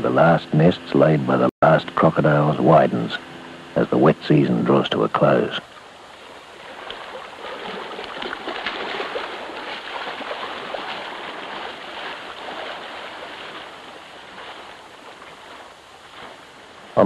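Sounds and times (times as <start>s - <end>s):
water rushing and splashing: 5.1s - 17.0s.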